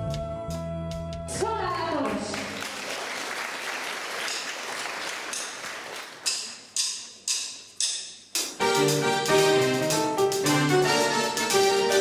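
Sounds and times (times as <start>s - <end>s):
applause: 2.0s - 6.3s
electric piano chords: 8.6s - 12.0s.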